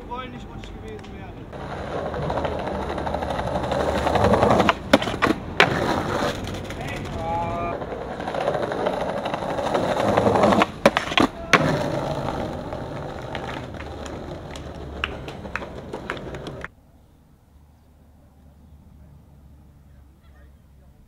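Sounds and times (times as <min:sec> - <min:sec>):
skateboard wheels rolling on paving: 0:00.0 - 0:16.8
outdoor background noise: 0:00.0 - 0:21.0
skateboard clacking on ground: 0:00.6 - 0:16.7.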